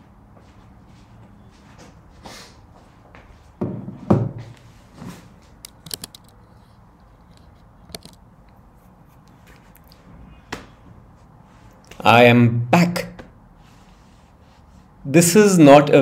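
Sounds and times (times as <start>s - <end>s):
thumps on desk: 3.6s - 4.5s.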